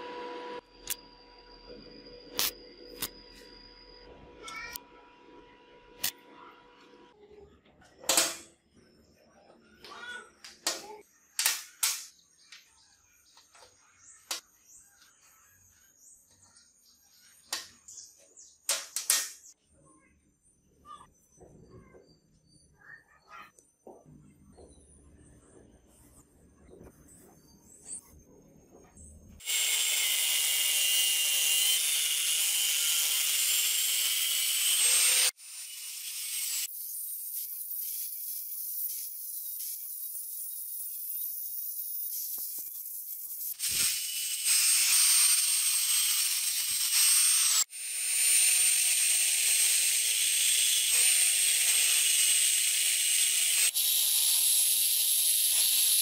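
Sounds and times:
angle grinder grinding metal: 0:29.4 - 0:56.0.

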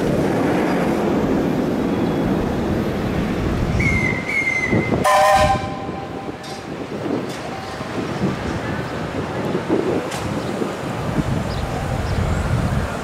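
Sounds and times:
steady rushing noise: 0:00.0 - 0:13.0
steam locomotive whistle: 0:03.8 - 0:06.3.

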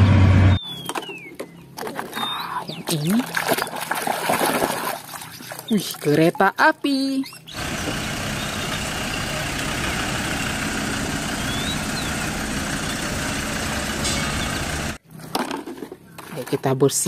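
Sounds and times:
road train engine running: 0:00.0 - 0:00.6, 0:07.5 - 0:15.0.

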